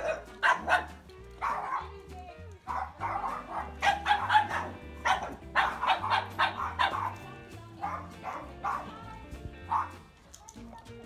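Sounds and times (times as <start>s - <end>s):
dog barking: 0.0s - 2.0s, 2.7s - 9.1s, 9.7s - 10.1s
background music: 0.0s - 11.0s.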